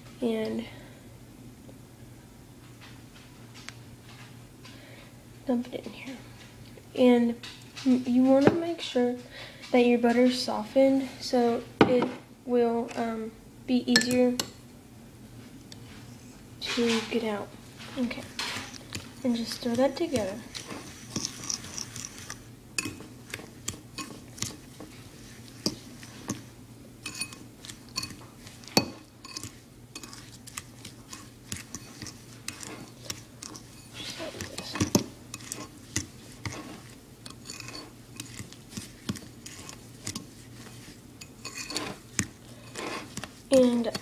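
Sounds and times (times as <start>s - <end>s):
fork clinking and scraping bowl: 17.8s - 44.0s.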